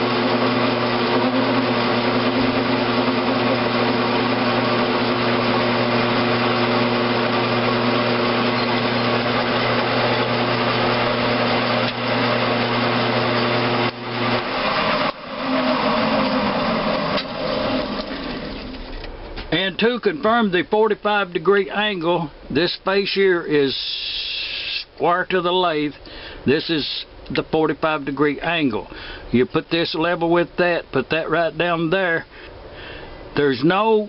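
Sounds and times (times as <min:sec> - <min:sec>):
metal lathe gear hum: 0:00.0 - 0:19.1.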